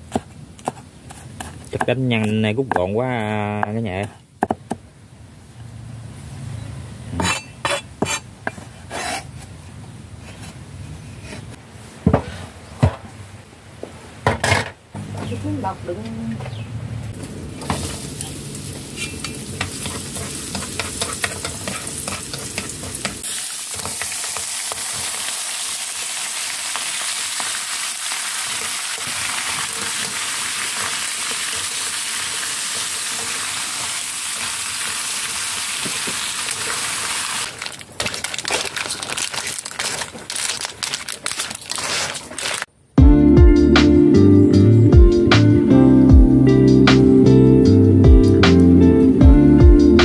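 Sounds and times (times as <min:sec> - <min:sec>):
clams sizzling in hot oil: 0:17.6 - 0:40.2.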